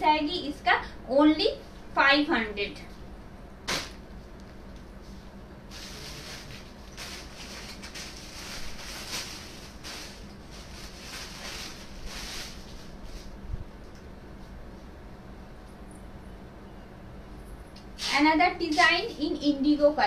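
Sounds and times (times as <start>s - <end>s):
cloth rustling: 5.0s - 13.4s.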